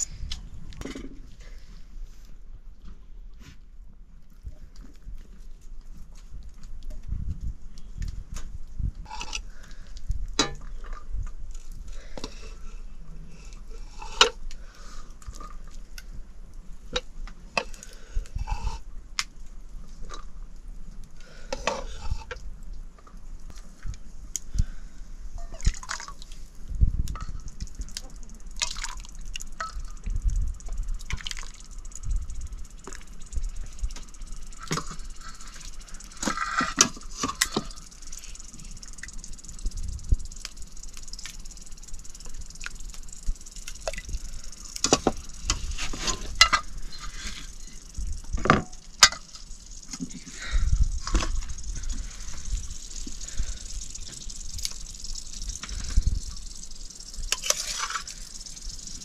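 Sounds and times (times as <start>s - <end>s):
sizzling hiss: 23.2s - 59.0s
liquid sounds: 25.4s - 59.0s.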